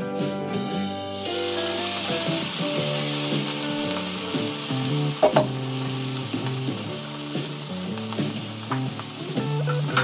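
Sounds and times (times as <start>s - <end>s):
background music: 0.0s - 10.0s
food sizzling in frying pan: 1.0s - 10.0s
sharp knocks: 5.2s - 5.5s.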